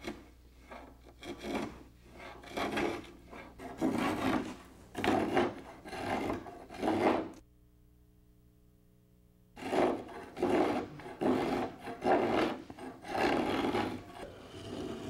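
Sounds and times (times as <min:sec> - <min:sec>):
spokeshave shaving wood: 0:01.1 - 0:07.4, 0:09.6 - 0:15.0.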